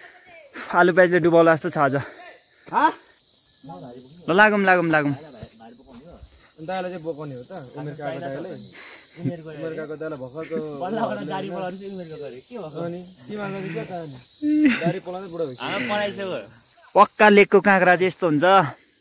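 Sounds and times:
insect chorus drone: 0:00.0 - 0:19.0
people talking: 0:03.7 - 0:18.7.

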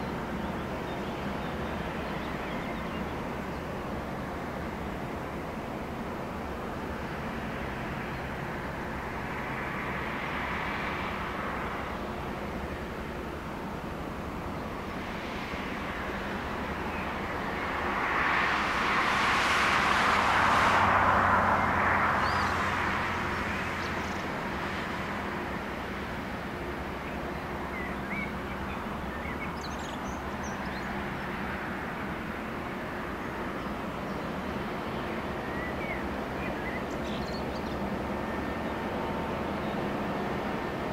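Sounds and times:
boat engine drone: 0:00.0 - 0:40.9
vehicle passing: 0:17.9 - 0:25.3.

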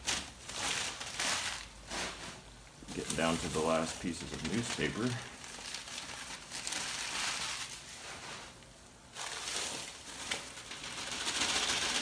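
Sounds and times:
newspaper rustling and crinkling: 0:00.0 - 0:12.0.

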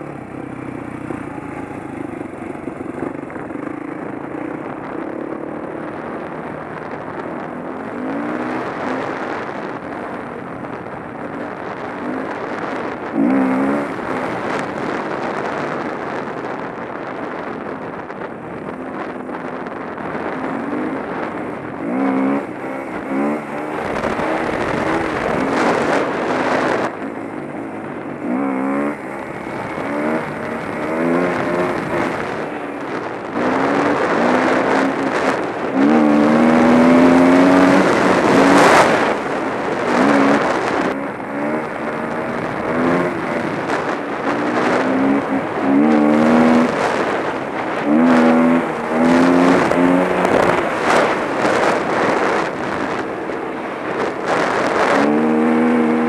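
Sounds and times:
wind rushing over microphone: 0:00.0 - 0:56.0
dirt bike engine revving: 0:11.8 - 0:15.8, 0:20.0 - 0:56.0.

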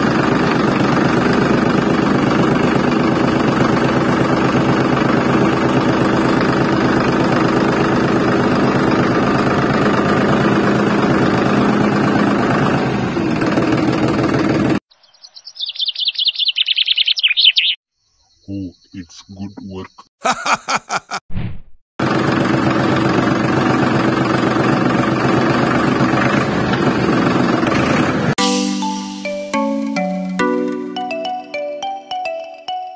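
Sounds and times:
motor running with rattle: 0:00.0 - 0:14.8, 0:22.0 - 0:28.3.

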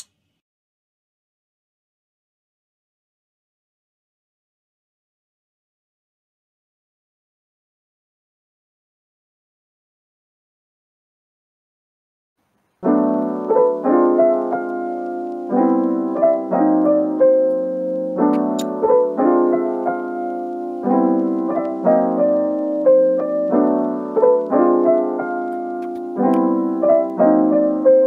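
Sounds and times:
piano music: 0:12.8 - 0:28.0.

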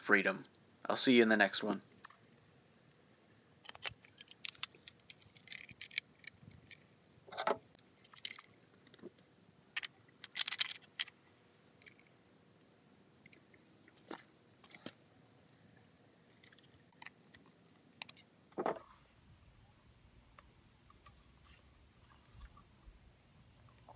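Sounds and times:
metal parts clicking and clinking: 0:03.6 - 0:08.6, 0:09.8 - 0:11.2.

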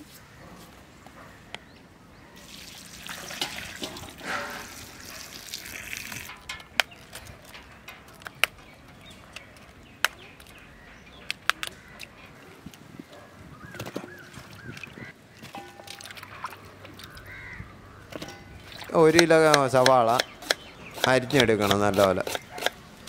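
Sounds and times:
water pouring into steel bowl: 0:02.4 - 0:06.3.

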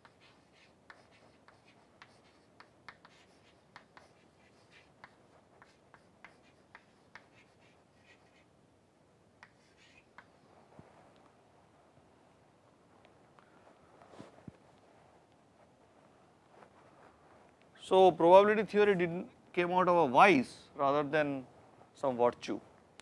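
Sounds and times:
chalk scratching on board: 0:00.0 - 0:08.5, 0:09.4 - 0:10.5
chalk tapping on chalkboard: 0:00.0 - 0:08.5, 0:09.4 - 0:10.4.

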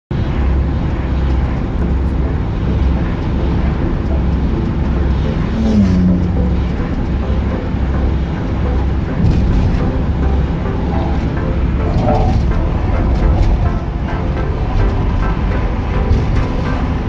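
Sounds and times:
car road and engine rumble: 0:00.1 - 0:17.0.

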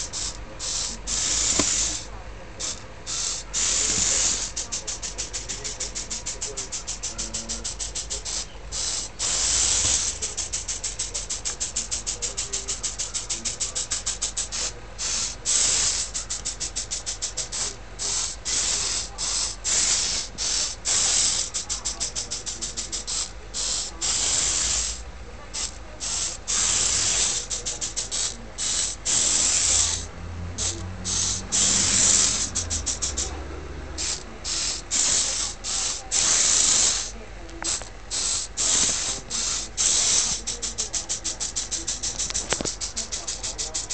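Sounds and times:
robot gear motors whirring: 0:25.6 - 0:33.3.

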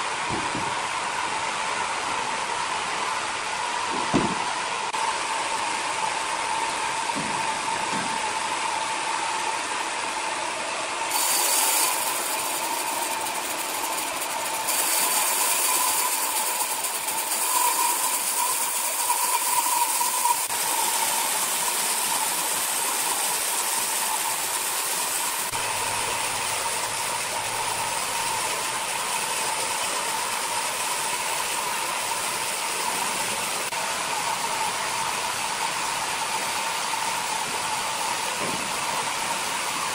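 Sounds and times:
band sawmill whining: 0:00.0 - 0:39.9
harsh sawing hiss: 0:11.1 - 0:32.7.

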